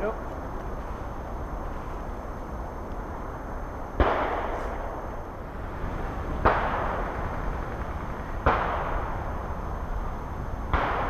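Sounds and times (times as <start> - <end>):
airsoft gunshots: 4.0 - 5.0, 6.4 - 9.2, 10.7 - 11.0.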